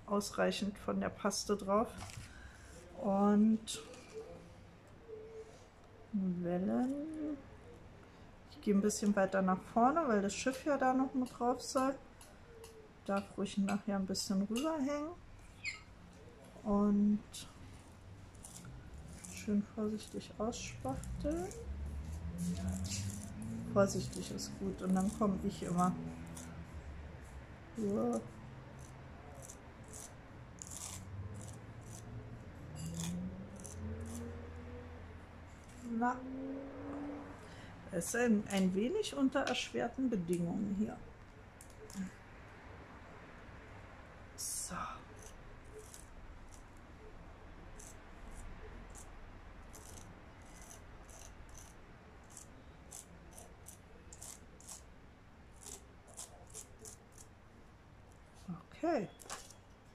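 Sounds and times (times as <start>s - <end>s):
low steady hum: 0.0s - 59.9s
palette knife scraping: 18.3s - 34.4s, 45.2s - 46.8s, 47.7s - 54.9s, 55.5s - 57.3s.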